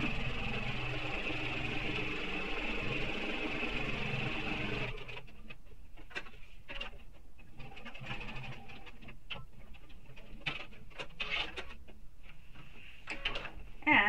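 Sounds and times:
sewing machine stitching: 0.0s - 5.4s, 6.7s - 11.8s.

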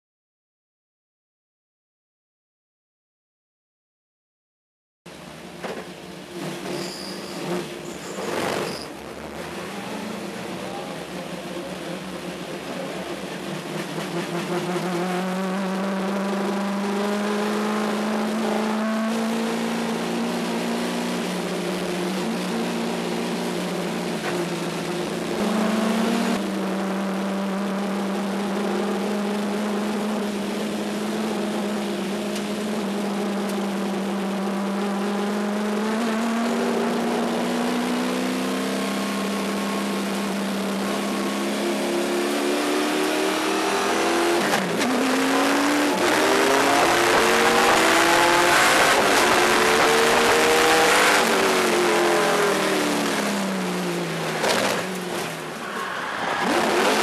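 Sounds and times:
race car engine from cockpit: 5.1s - 57.0s.

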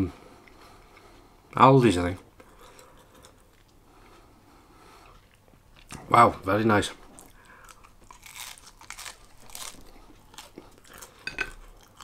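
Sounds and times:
person chewing crusty bread: 2.4s - 4.2s, 7.1s - 12.0s.

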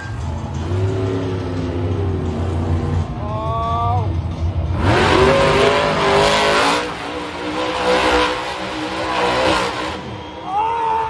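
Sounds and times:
truck engine revving hard: 4.4s - 10.4s.

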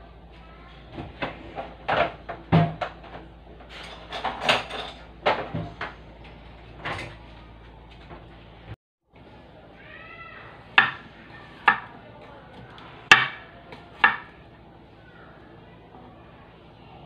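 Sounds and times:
knocks and clatters in kitchen: 0.2s - 8.8s, 10.6s - 14.5s.

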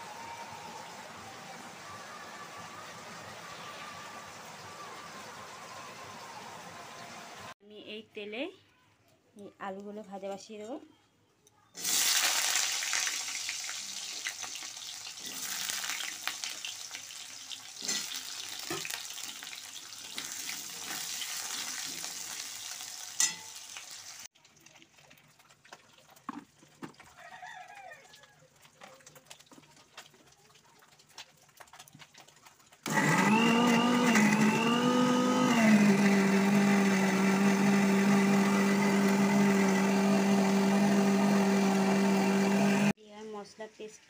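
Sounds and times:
potatoes sizzling in hot oil: 11.8s - 26.2s.

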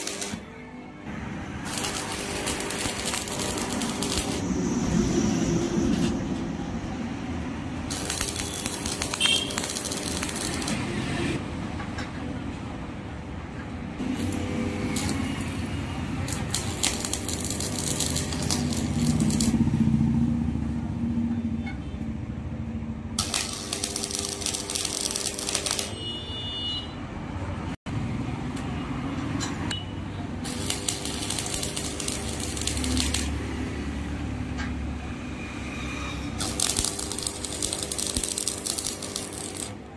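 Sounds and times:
welding arc crackling: 0.0s - 0.4s, 1.1s - 5.3s, 7.7s - 11.4s, 14.0s - 20.2s, 23.2s - 26.2s, 30.4s - 34.2s, 36.3s - 39.9s
welder low hum: 1.1s - 11.4s, 14.0s - 20.2s.

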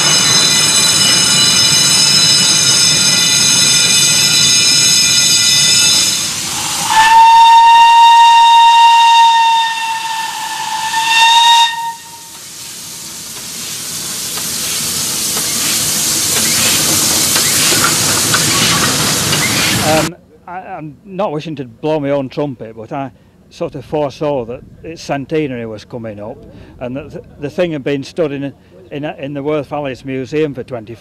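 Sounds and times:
high steady squeal: 0.0s - 12.4s
steam locomotive whistle: 0.0s - 12.5s
steam hissing: 0.0s - 20.1s.

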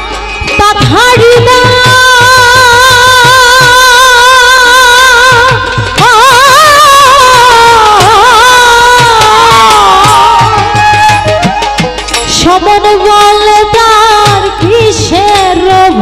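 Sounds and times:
woman singing folk song: 0.6s - 10.6s, 12.3s - 16.0s
steady drum beat: 7.5s - 16.0s.

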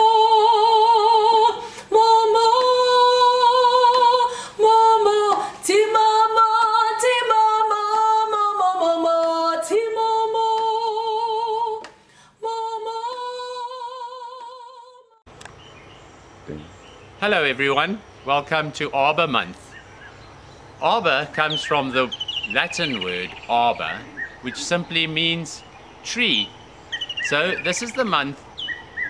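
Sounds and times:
woman singing unaccompanied: 0.0s - 15.2s.

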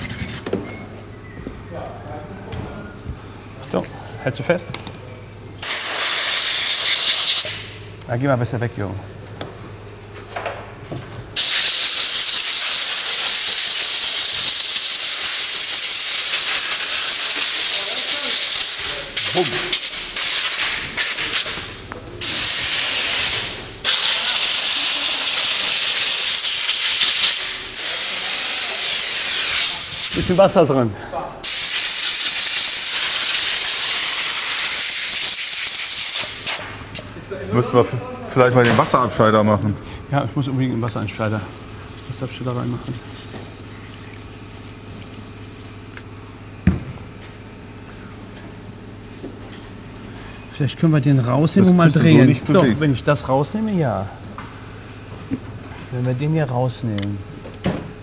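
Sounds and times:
air blow gun hissing: 5.3s - 8.4s, 11.4s - 21.6s, 22.2s - 30.4s, 31.4s - 37.1s.

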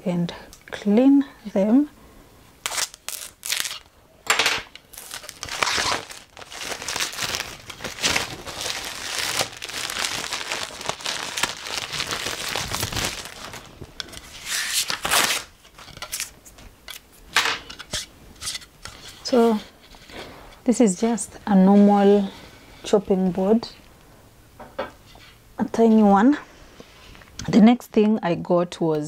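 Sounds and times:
wrapping crinkling and tearing: 2.6s - 3.9s, 4.8s - 17.0s.

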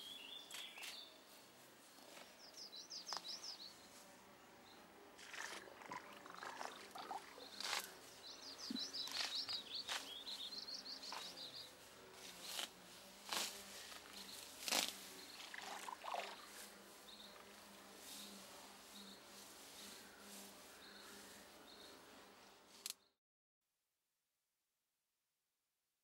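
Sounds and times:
bird chirps: 6.0s - 11.7s.

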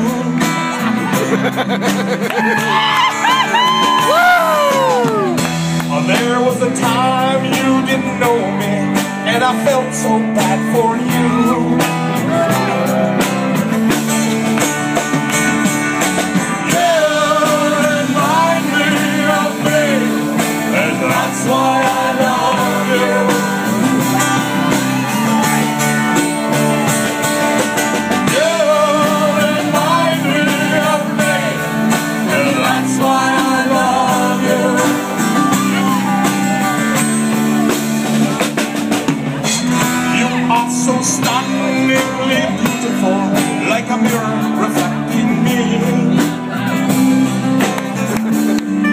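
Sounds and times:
strummed acoustic guitar: 0.0s - 4.0s, 4.8s - 48.9s
drums: 0.0s - 48.9s
sliding lead guitar line: 0.0s - 48.9s.

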